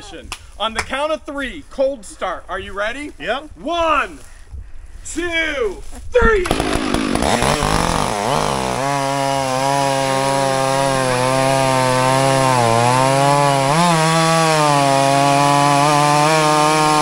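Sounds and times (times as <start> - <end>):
chainsaws cutting a log: 6.4 - 17.0.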